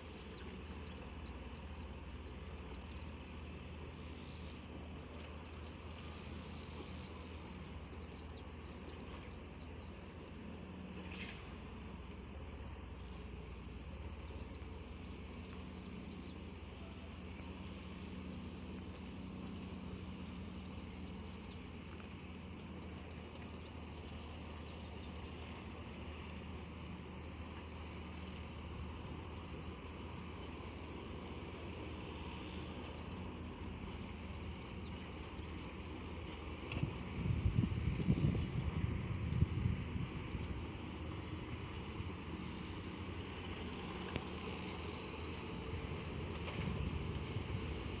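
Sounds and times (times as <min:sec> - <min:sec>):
songbird trilling: 0:00.0 - 0:10.2, 0:13.0 - 0:17.5, 0:18.1 - 0:25.4, 0:28.2 - 0:30.1, 0:31.2 - 0:37.2, 0:38.4 - 0:41.6, 0:44.5 - 0:45.8, 0:46.8 - 0:48.0.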